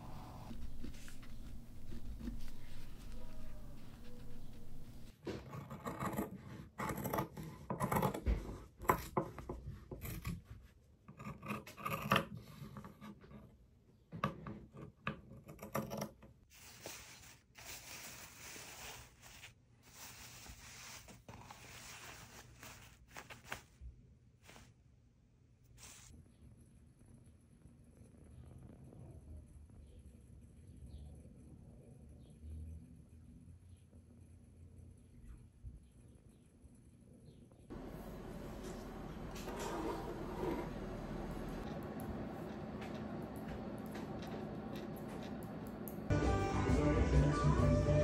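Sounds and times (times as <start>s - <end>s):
cloth rustling and rubbing: 0.0s - 5.1s, 16.5s - 23.8s, 24.4s - 24.8s, 25.7s - 26.1s.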